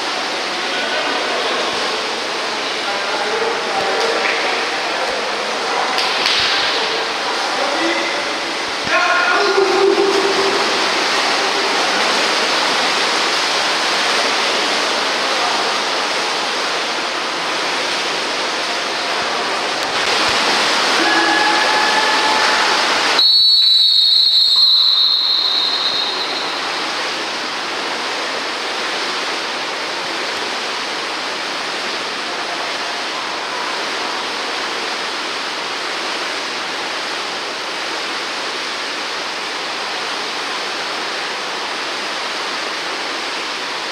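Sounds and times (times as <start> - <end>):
hubbub of players: 0.0 - 28.0
water splashing in a pool: 0.0 - 43.9
referee's whistle blast: 23.2 - 26.8.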